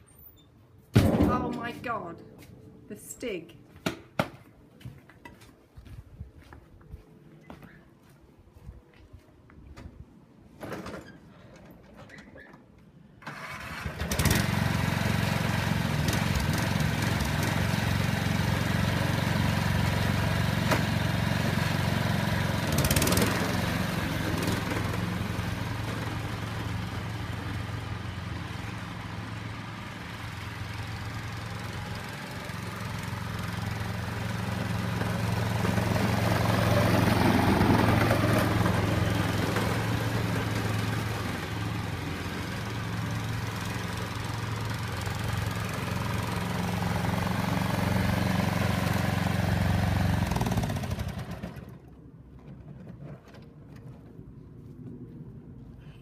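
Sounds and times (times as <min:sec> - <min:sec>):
ride-on mower engine running: 0:13.2 - 0:52.0.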